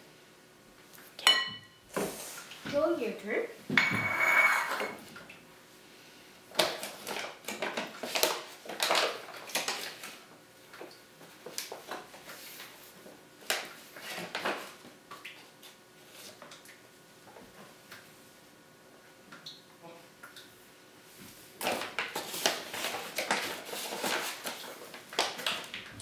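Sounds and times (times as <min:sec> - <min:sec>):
measuring cup scraping and clinking: 0:03.8 - 0:05.0
plastic bag rustling: 0:21.6 - 0:26.0.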